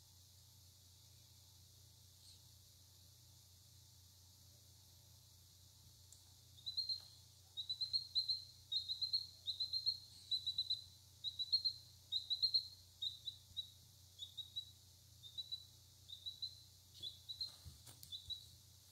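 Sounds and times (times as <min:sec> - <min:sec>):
chick peeping: 0:06.6 - 0:18.5.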